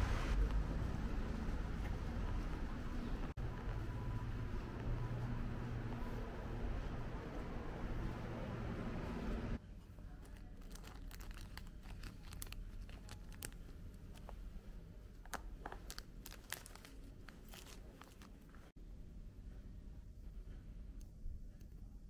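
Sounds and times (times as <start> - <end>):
outdoor background noise: 0.0 - 22.0
plastic pouch crinkling: 10.2 - 14.3, 15.3 - 18.5.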